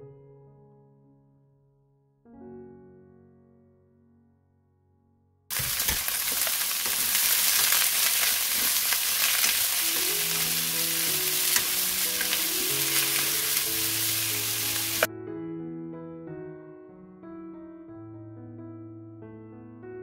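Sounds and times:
soft piano music: 0:00.0 - 0:20.0
food sizzling in a wok: 0:05.5 - 0:15.1.

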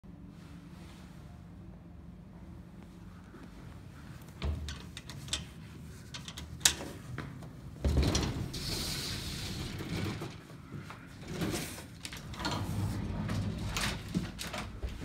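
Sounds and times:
metal gate sliding and rattling: 0:07.9 - 0:10.4, 0:11.2 - 0:14.8.

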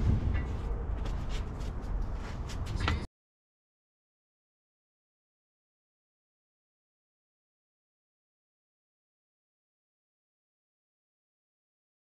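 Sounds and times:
low outdoor rumble: 0:00.0 - 0:03.1.

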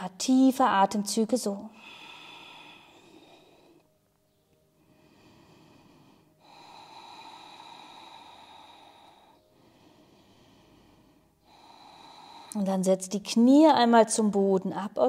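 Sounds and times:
woman breathing deeply: 0:01.7 - 0:04.0, 0:04.6 - 0:12.8.

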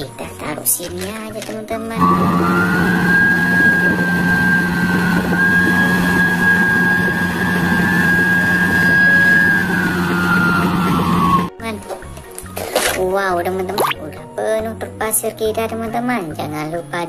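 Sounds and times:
excavator diesel hum: 0:02.0 - 0:11.5
hydraulic whine: 0:02.0 - 0:11.5.

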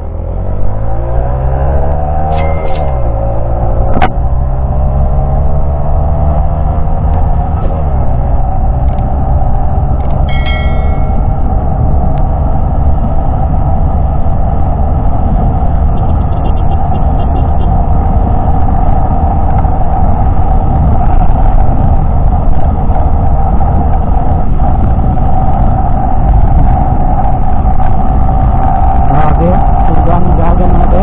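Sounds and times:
wind rush on microphone: 0:11.0 - 0:31.0.

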